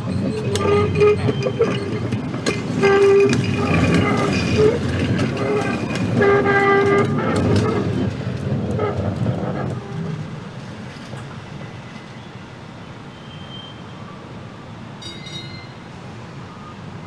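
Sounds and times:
wheel squeals: 0.0s - 10.1s, 11.5s - 14.0s, 15.0s - 16.8s
streetcar rumbling: 0.0s - 17.0s
wheels clicking over rail: 0.1s - 9.9s.

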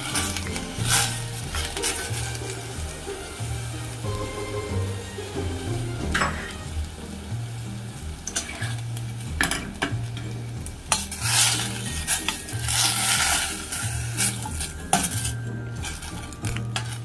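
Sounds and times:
spoon knocking on a pan: 6.0s - 6.7s
spoon scraping and squelching fruit: 10.9s - 17.0s.

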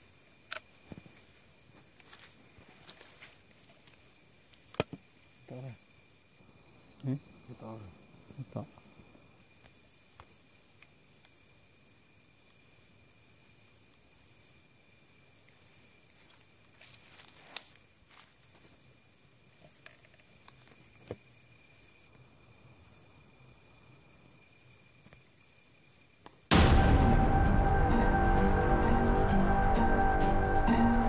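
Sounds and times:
crickets trilling: 0.0s - 31.0s
insect chirp: 0.0s - 31.0s
snaps and rustles in undergrowth: 16.2s - 18.4s.

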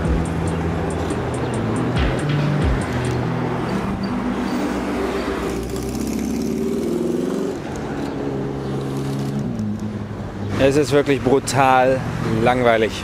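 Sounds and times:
street traffic: 0.0s - 13.0s
car accelerating past: 3.5s - 9.7s.

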